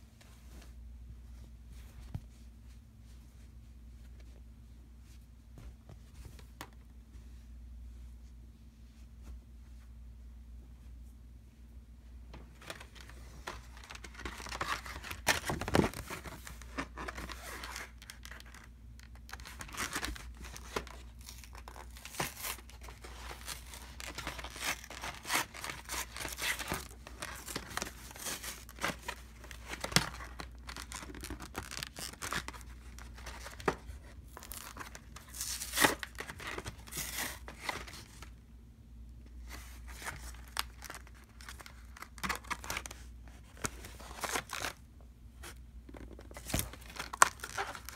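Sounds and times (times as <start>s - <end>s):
packaging rustling and tearing: 12.6s - 38.3s, 39.5s - 44.8s, 45.4s - 47.9s.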